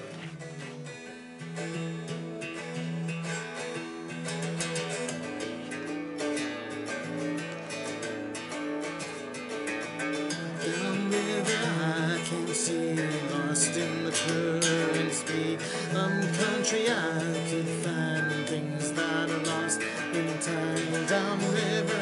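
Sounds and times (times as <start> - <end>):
electric guitar strumming chords: 0.0 - 22.0.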